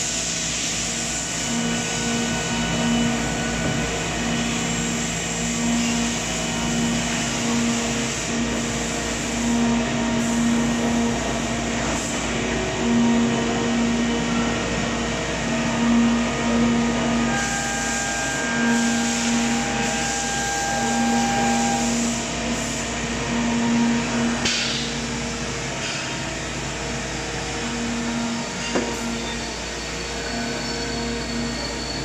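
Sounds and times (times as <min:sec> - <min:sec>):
milling machine cutting tone: 0:00.9 - 0:25.7.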